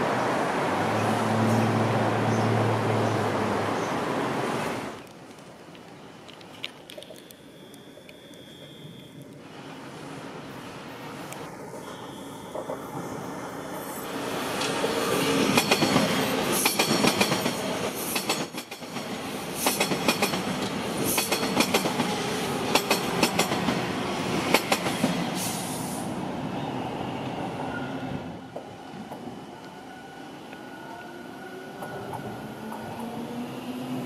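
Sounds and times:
train wheels clacking over joints: 0:15.5 - 0:22.1.

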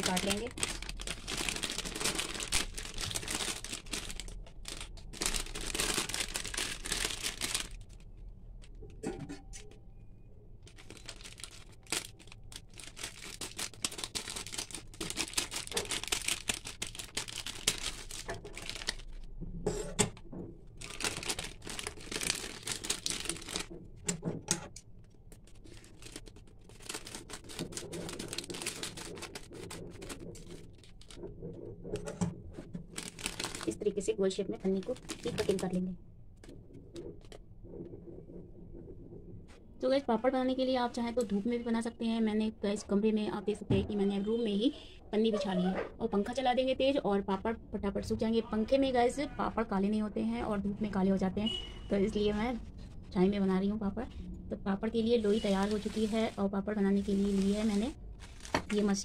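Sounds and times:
plastic sheet crinkling: 0:00.0 - 0:08.8, 0:10.6 - 0:19.3, 0:20.7 - 0:24.0, 0:25.0 - 0:38.0, 0:55.1 - 0:59.0.

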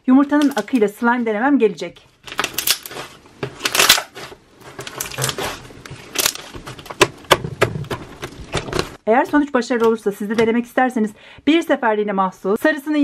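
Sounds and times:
slime squishing: 0:02.2 - 0:09.0.

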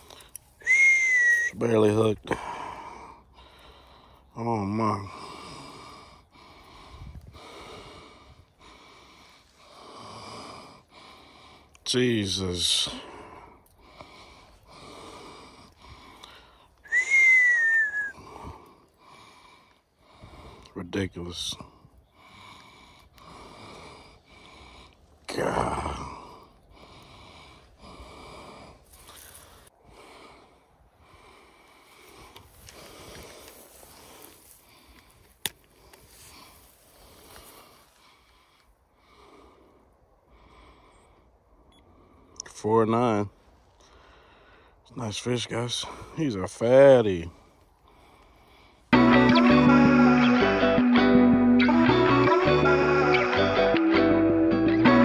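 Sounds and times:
man breathing hard: 0:00.0 - 0:00.7, 0:02.2 - 0:11.8, 0:12.7 - 0:20.8, 0:21.6 - 0:42.4, 0:43.5 - 0:44.9, 0:47.3 - 0:49.0
admiring whistle: 0:00.6 - 0:01.6, 0:16.8 - 0:18.3.

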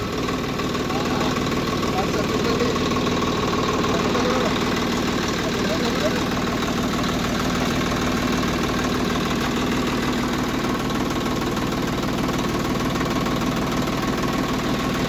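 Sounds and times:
tractor diesel engine idling: 0:00.0 - 0:15.0.

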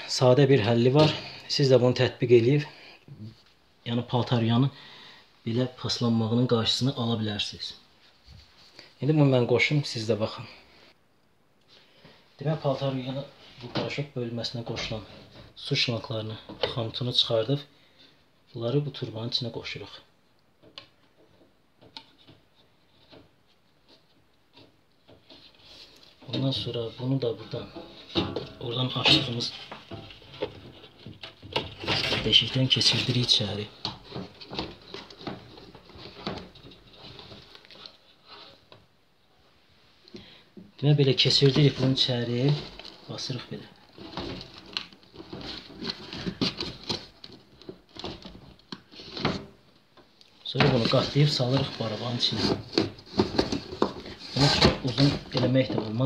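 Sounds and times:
rubber hose scraping plastic: 0:50.6 - 0:56.0.

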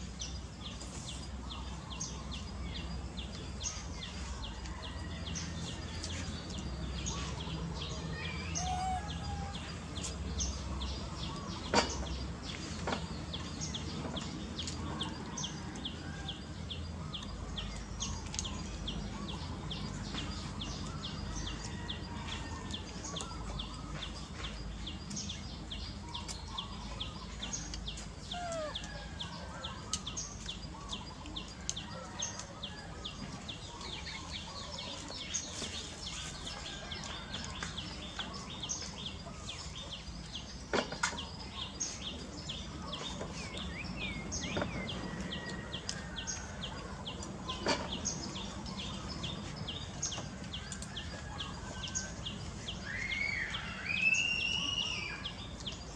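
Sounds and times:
whistled calls: 0:52.8 - 0:55.3.

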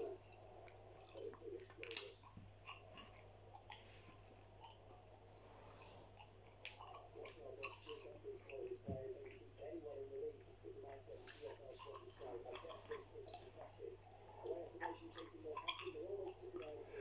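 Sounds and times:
gum chewing mouth clicks: 0:04.4 - 0:05.4, 0:06.1 - 0:08.6.

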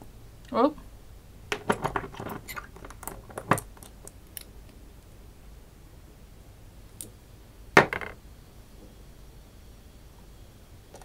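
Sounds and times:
clatter of knocks: 0:01.5 - 0:04.0.

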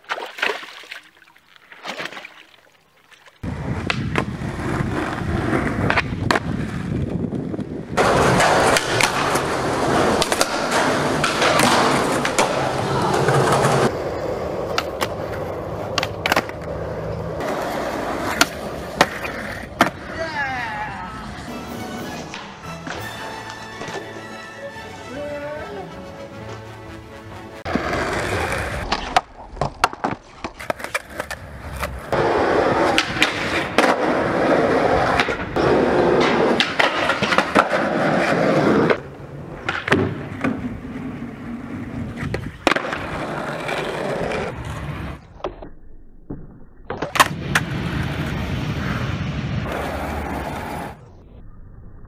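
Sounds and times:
skateboard wheels rolling on pavement: 0:03.2 - 0:45.7, 0:46.3 - 0:51.3
skateboard clacks: 0:03.4 - 0:20.2, 0:27.6 - 0:34.2, 0:35.0 - 0:44.7.

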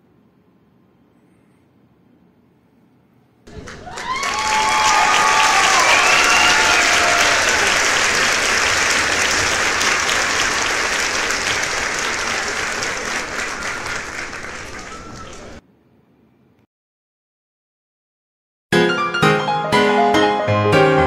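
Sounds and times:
crowd applauding: 0:03.5 - 0:15.6
whistles from crowd: 0:03.5 - 0:15.6.

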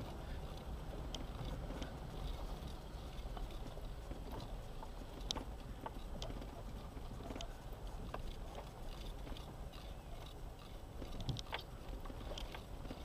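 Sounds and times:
off-road vehicle rumbling: 0:00.0 - 0:13.0.

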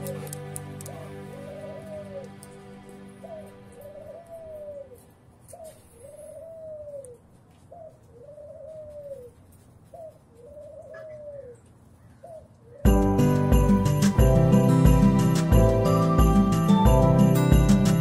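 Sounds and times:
dove cooing: 0:00.0 - 0:02.4, 0:03.2 - 0:12.9.

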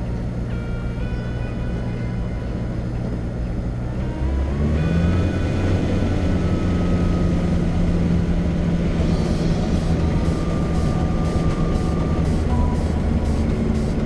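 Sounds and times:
propeller plane engine: 0:00.0 - 0:14.0.

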